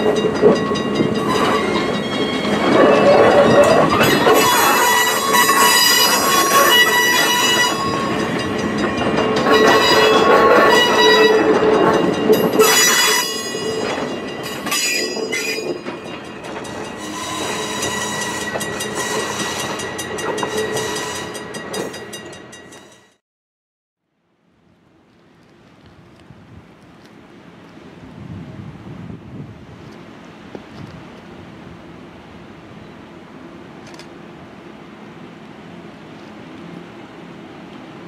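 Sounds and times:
train wheels rumbling on rails: 0.0s - 23.2s
train wheels squealing: 0.0s - 23.2s.

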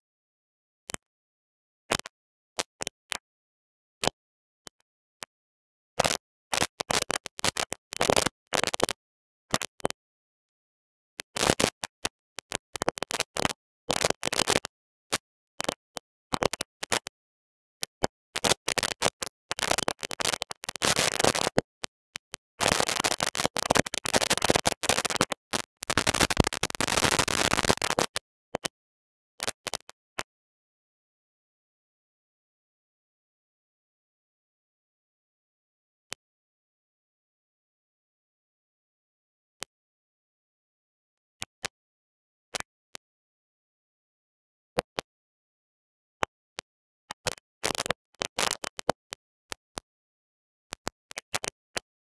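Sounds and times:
scratchy crackling handling noise: 18.4s - 28.2s.

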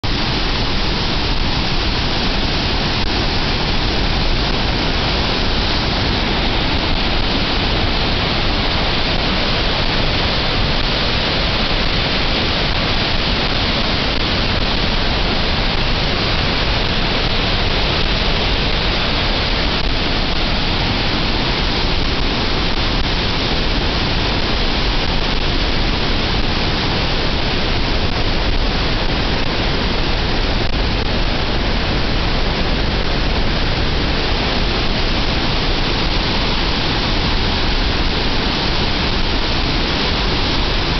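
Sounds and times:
turbulent water rushing: 0.0s - 40.9s.

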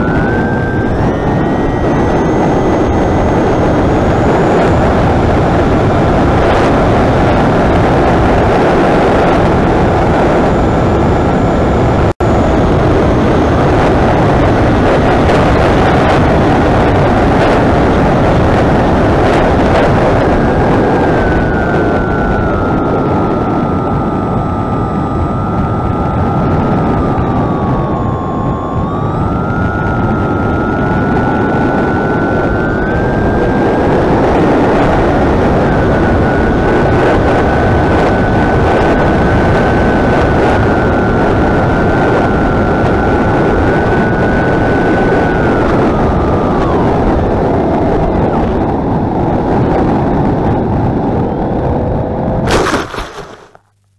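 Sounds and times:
electric motor and propeller whine: 0.0s - 53.6s
heavy wind rush: 0.0s - 53.6s
sharp noise: 52.5s - 53.6s.

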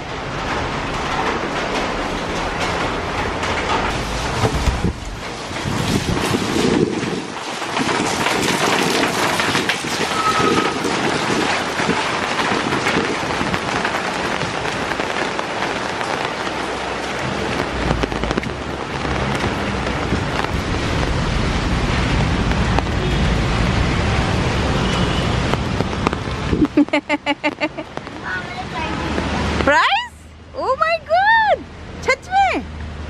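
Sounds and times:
low rumble: 0.0s - 7.2s
heavy rain on paving and umbrella: 0.0s - 33.0s.

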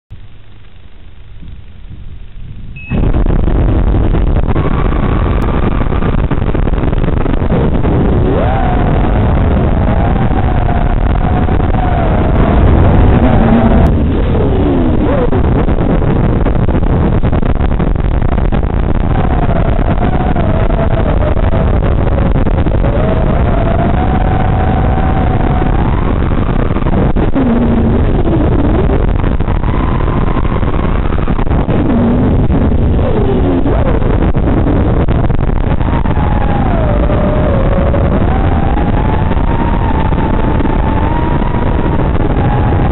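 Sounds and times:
wind and propeller noise: 0.1s - 42.9s
motor whine: 2.4s - 16.5s.

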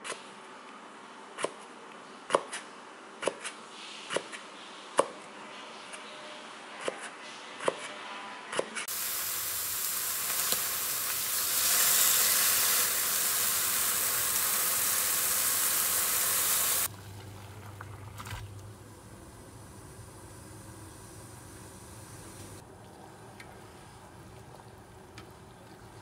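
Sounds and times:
mushrooms sizzling in frying pan: 8.9s - 17.3s
pot of noodles boiling: 8.9s - 26.0s
low hum: 16.9s - 25.0s.

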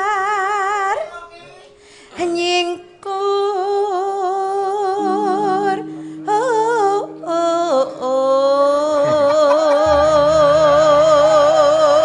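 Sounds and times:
woman singing with vibrato: 2.2s - 12.0s
low steady instrumental tone: 5.0s - 12.0s.

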